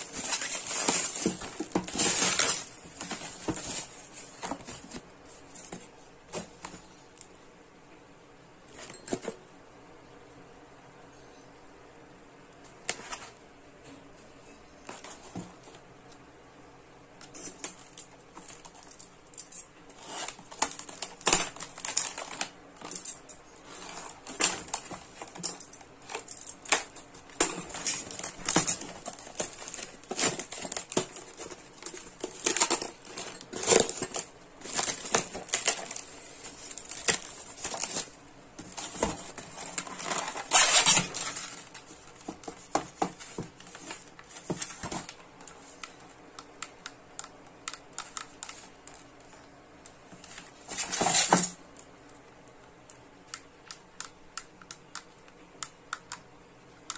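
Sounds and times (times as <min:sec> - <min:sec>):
plastic wrap crinkling: 0:00.0 - 0:06.8, 0:17.3 - 0:45.8.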